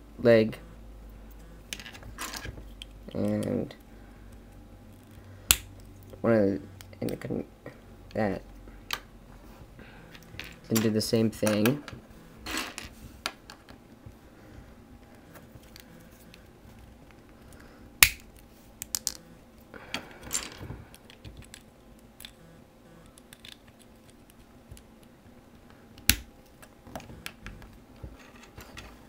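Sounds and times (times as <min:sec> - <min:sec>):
sharp plastic snaps: 0:05.5 - 0:06.2, 0:18.0 - 0:19.2, 0:26.0 - 0:26.6
plastic pieces clicking and clattering: 0:23.1 - 0:24.9.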